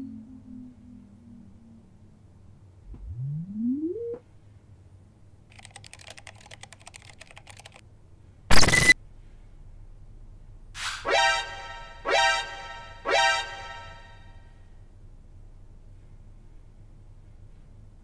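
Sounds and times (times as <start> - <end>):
electronic power-up whine: 2.9 - 4.2, 8.5 - 9.0
keyboard-like typing clicks: 5.5 - 7.8.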